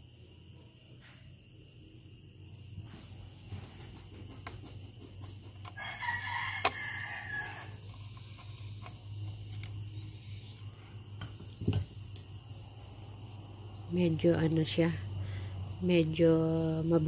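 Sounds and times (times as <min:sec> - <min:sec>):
steady low hum: 0:00.0 - 0:17.0
rooster crowing: 0:05.6 - 0:08.2.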